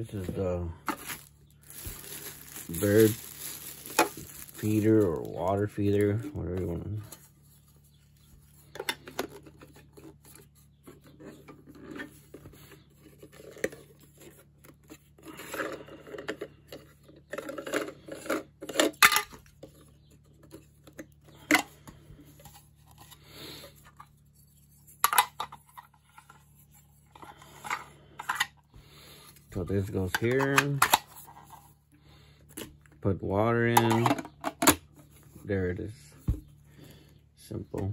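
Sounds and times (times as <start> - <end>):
plastic parts clicking and rubbing: 0.1 - 7.2, 8.4 - 23.2, 29.3 - 31.8, 33.7 - 35.1.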